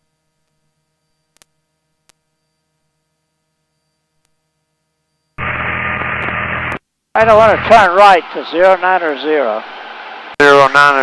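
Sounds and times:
faint electrical hum: 0.0s - 10.9s
loud radio hiss: 5.4s - 11.0s.

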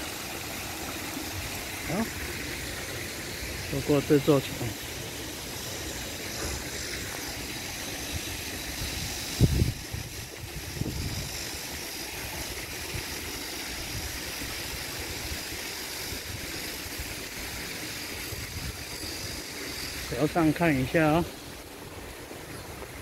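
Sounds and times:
even hiss: 0.0s - 23.0s.

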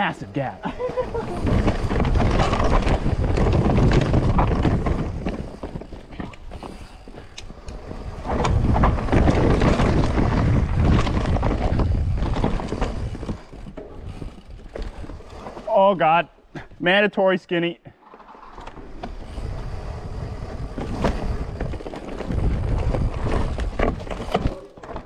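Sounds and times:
bike knocking and rattling: 0.6s - 15.7s, 18.0s - 25.0s
tyre rumble: 0.7s - 15.9s, 18.0s - 25.0s
wind rushing on microphone: 7.5s - 13.5s, 19.1s - 24.1s.

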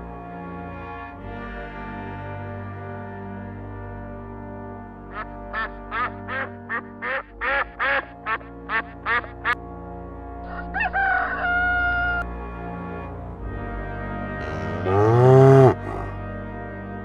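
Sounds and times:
soft background music: 0.0s - 17.0s
duck quacking: 5.1s - 9.6s, 14.4s - 16.2s
rooster crowing: 10.5s - 12.2s.

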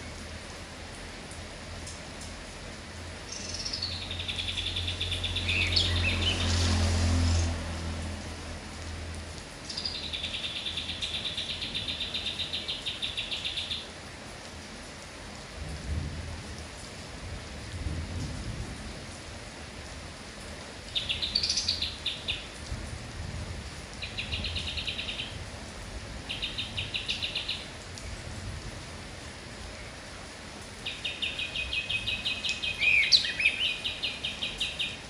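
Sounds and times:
rain hissing: 0.0s - 35.0s
songbird singing chattering trills: 3.3s - 6.5s, 9.7s - 13.8s, 30.9s - 35.0s
low rumbles of thunder: 15.6s - 19.4s, 22.7s - 25.6s.

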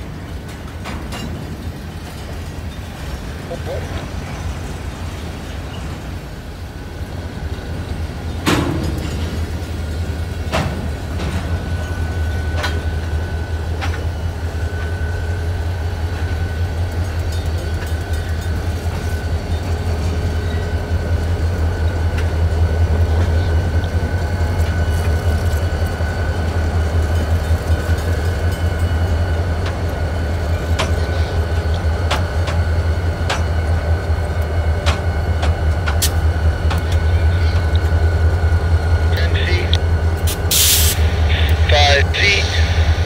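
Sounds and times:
freight cars clattering: 0.0s - 6.1s, 7.9s - 12.0s
diesel locomotive engine drone: 0.0s - 43.0s
train wheel clicks: 23.2s - 38.0s.

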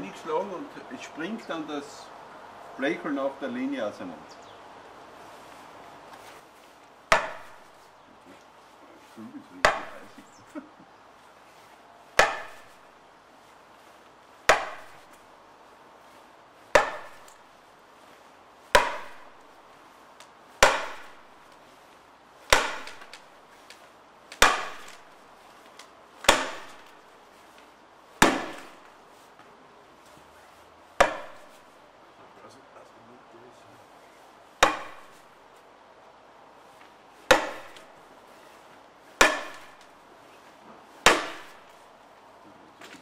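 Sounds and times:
mallet striking axe splitting log: 7.1s - 7.7s, 9.6s - 10.2s, 12.2s - 12.8s, 14.5s - 15.1s, 16.7s - 17.4s, 18.7s - 19.4s, 20.6s - 21.2s, 22.5s - 23.3s, 24.3s - 25.2s, 26.2s - 27.0s, 28.2s - 28.9s, 31.0s - 31.6s, 34.6s - 35.2s, 37.3s - 37.9s, 39.2s - 39.9s, 41.0s - 41.7s.

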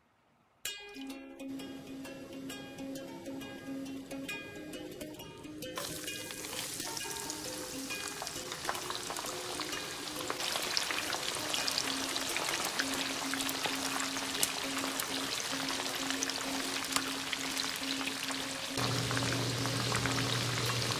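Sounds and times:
deep-frying sizzle with crackles: 5.8s - 20.9s.

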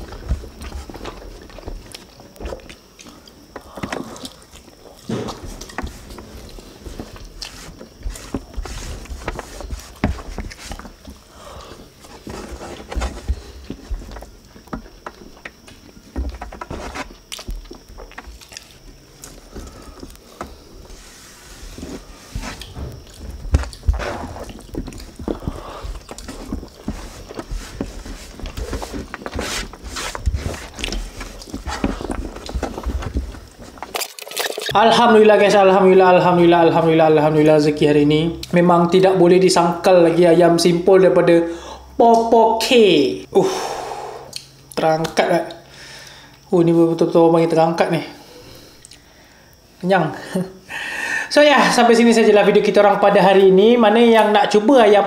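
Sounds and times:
chewing and mouth sounds: 17.2s - 20.2s.

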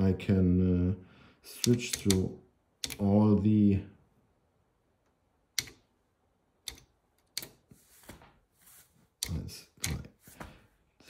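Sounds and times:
keypad keys clicking: 1.6s - 3.0s, 5.6s - 5.8s, 6.6s - 7.6s.

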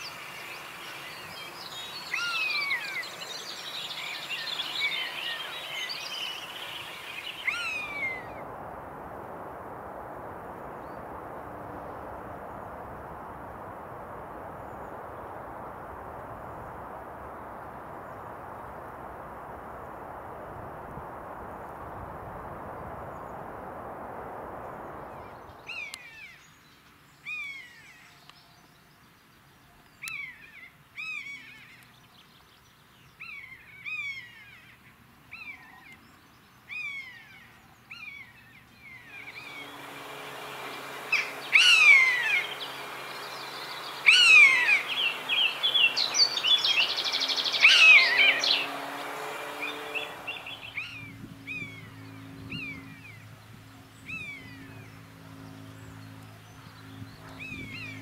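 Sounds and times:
background hiss: 0.0s - 30.0s, 38.7s - 58.0s
buzzard mewing: 39.3s - 50.9s.

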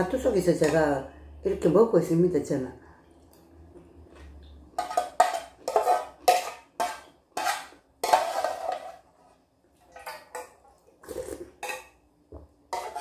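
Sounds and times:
person slurping noodles: 11.0s - 11.6s.

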